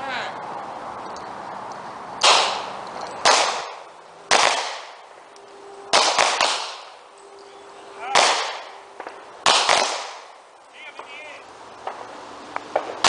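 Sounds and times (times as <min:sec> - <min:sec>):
gunshots with echo: 0:02.2 - 0:05.0, 0:05.9 - 0:07.0, 0:08.0 - 0:10.4.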